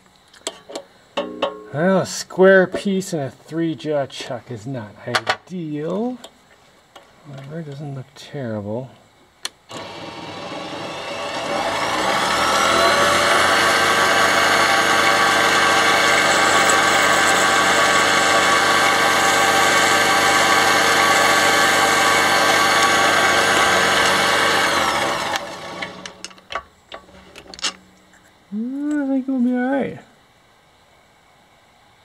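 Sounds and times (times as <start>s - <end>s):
metal lathe motor whining: 9.7s - 26.4s.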